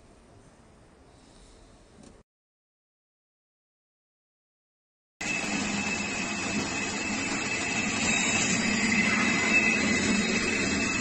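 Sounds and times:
machine motor whirring and whining: 5.2s - 11.0s.

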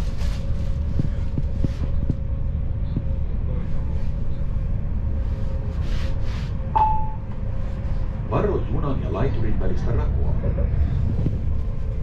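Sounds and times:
train low rumble: 0.0s - 12.0s
single chime note: 6.8s - 7.3s.

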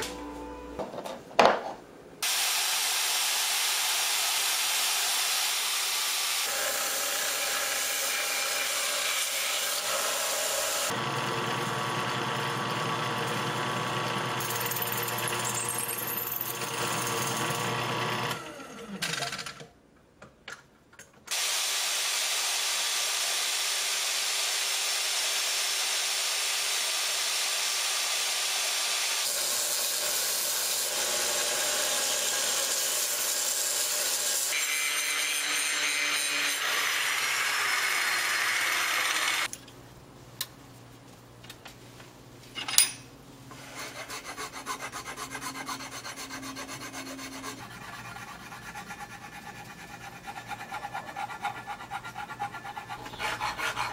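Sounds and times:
angle grinder on metal: 6.4s - 11.0s, 29.2s - 39.5s
hand file rasping on wood: 43.6s - 53.9s.

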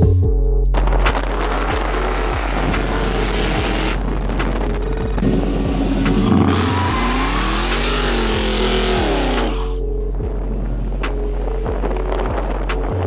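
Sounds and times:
pickup engine revving: 0.8s - 9.8s.

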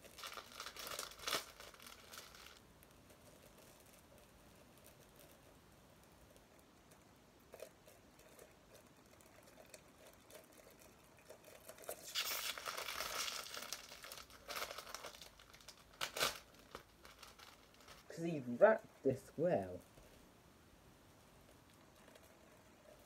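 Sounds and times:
packaging crinkling and tearing: 0.0s - 2.6s, 11.4s - 18.1s.

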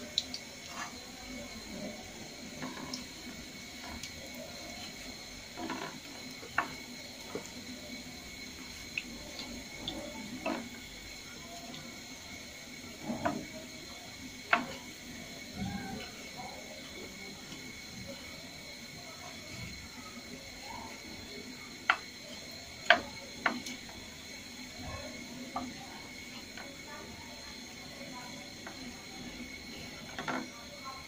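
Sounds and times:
meat sizzling in hot oil: 0.0s - 31.0s
wooden spatula tapping a pan: 14.5s - 14.8s, 21.8s - 22.1s, 22.8s - 23.8s.

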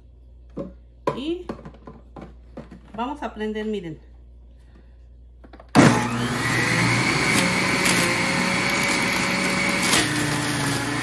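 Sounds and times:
juicer motor whining: 5.7s - 11.0s.

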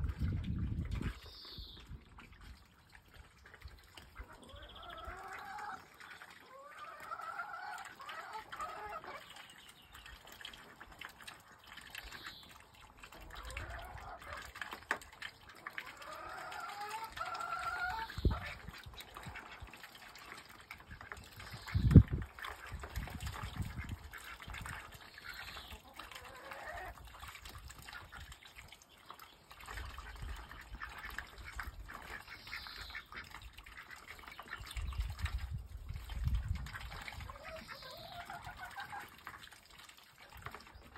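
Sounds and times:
ducks quacking: 37.2s - 39.2s.

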